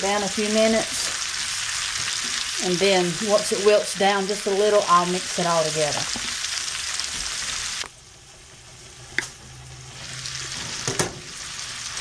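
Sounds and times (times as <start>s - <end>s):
food sizzling in a skillet: 0.0s - 12.0s.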